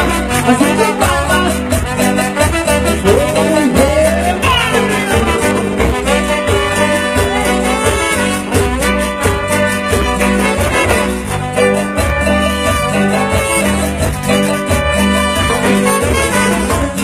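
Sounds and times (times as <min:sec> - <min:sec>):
bass: 0:00.0 - 0:17.0
drums: 0:00.0 - 0:17.0
keyboard: 0:00.0 - 0:17.0
trumpets playing melody: 0:00.0 - 0:17.0.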